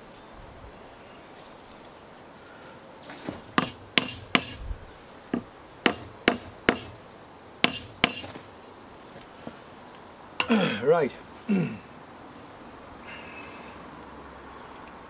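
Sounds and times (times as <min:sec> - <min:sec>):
hammer tapping a nail: 0:03.6 - 0:04.6, 0:05.9 - 0:07.0, 0:07.6 - 0:08.3.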